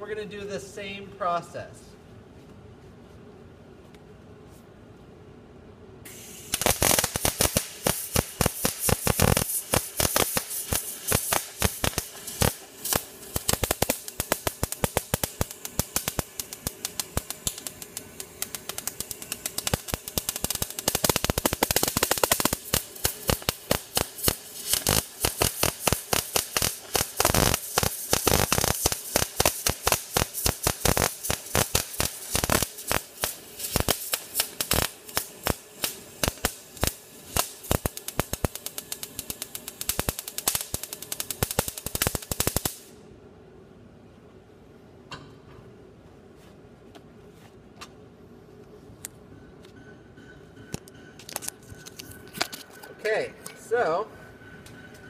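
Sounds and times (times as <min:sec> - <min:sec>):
welding arc crackling: 0:06.1 - 0:43.0.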